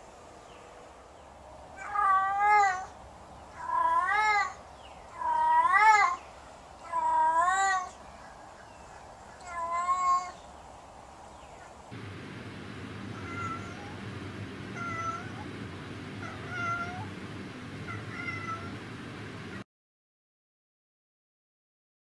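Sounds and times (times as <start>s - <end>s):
cat yowling: 1.8s - 2.9s, 13.1s - 14.0s, 14.7s - 15.5s, 16.2s - 17.2s, 17.8s - 18.8s.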